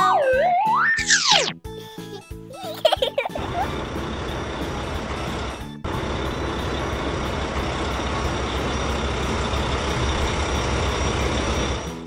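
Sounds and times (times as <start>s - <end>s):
truck engine rumbling: 3.3s - 12.0s.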